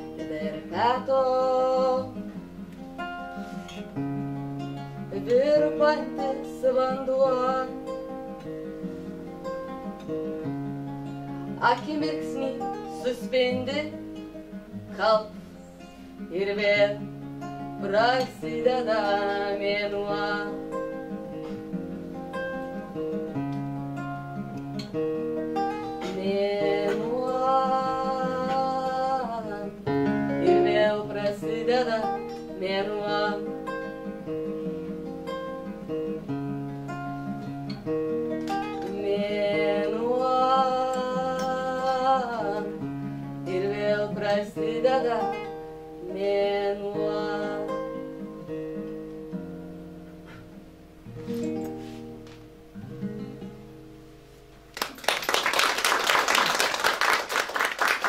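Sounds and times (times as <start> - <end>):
woman singing: 0.0 - 2.4, 5.0 - 8.4, 11.4 - 15.6, 16.2 - 21.1, 26.0 - 34.3, 38.5 - 48.5
acoustic guitar picking: 0.0 - 54.8.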